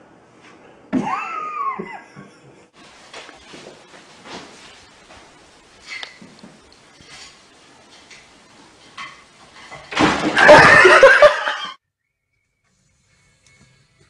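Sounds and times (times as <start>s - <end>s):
loud crash and clatter: 9.6s - 11.0s.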